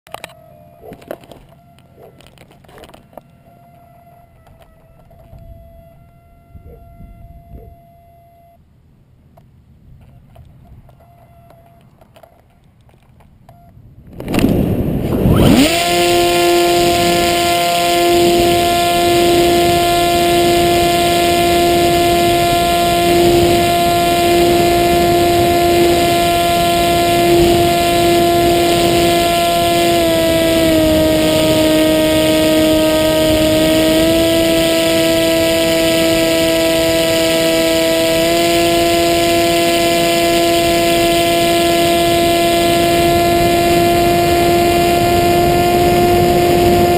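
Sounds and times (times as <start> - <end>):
electric motor propeller whine: 0.1 - 8.6, 14.1 - 46.9
wind rush: 13.9 - 17.5.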